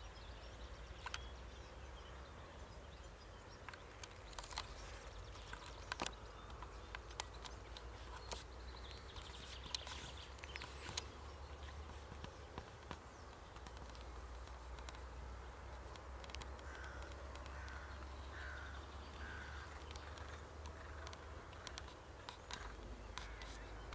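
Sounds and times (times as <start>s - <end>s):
faint clicks: 0.9s - 1.4s, 3.2s - 23.9s
bird calling: 15.8s - 23.9s.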